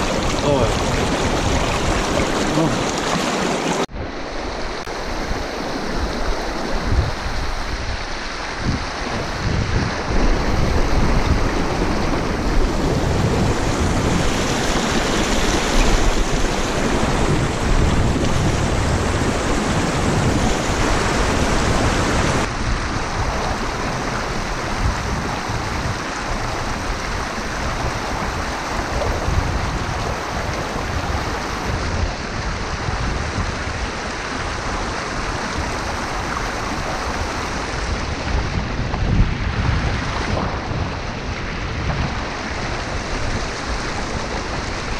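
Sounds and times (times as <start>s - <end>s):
river rapids rushing over rocks: 0.0s - 3.9s.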